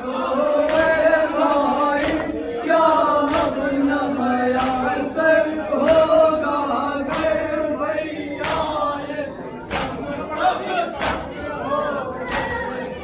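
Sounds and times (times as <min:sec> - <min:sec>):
men chanting a lament in unison: 0:00.0 - 0:13.0
chest-beating slaps: 0:04.5 - 0:05.0, 0:09.7 - 0:10.1, 0:11.0 - 0:11.4, 0:12.2 - 0:12.7.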